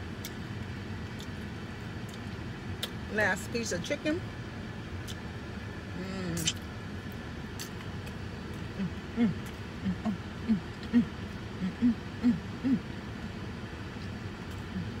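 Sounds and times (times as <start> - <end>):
woman humming: 6.0 - 6.5, 8.7 - 13.0.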